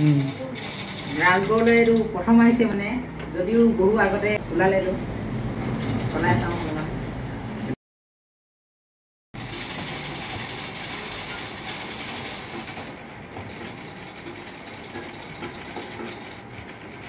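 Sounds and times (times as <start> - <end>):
sewing machine rattling: 0.0 - 2.3, 9.4 - 17.0.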